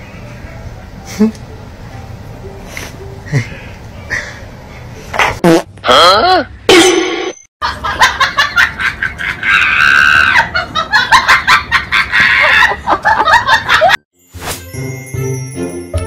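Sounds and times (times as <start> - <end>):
person shrieking with laughter: 9.2 - 10.7, 11.9 - 12.9
music with chiming notes: 14.2 - 16.0.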